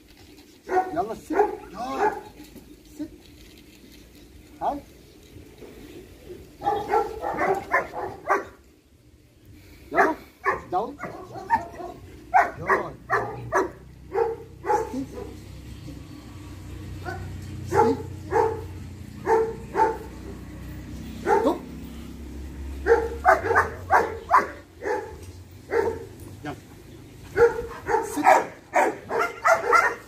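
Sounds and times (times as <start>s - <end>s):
dog barking: 0.7s - 2.3s, 6.6s - 8.6s, 9.9s - 15.4s, 17.0s - 20.4s, 21.2s - 21.7s, 22.8s - 26.1s, 27.3s - 30.0s.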